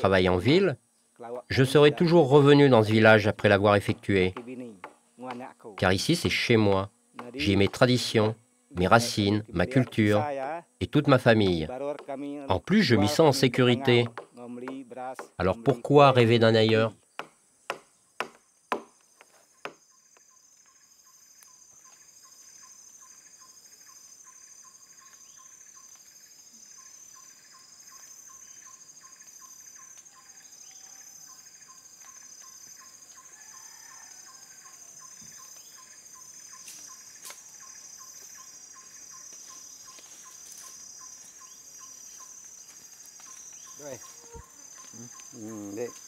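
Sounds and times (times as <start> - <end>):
forest insects buzzing: 0.0 - 46.0
sharp knocks: 16.6 - 19.8.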